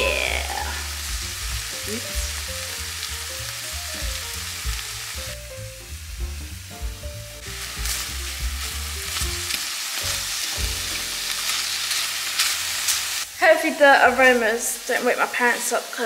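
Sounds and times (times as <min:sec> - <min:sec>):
background music: 0:00.0 - 0:12.2
chicken sizzling in frying pan: 0:00.0 - 0:16.0.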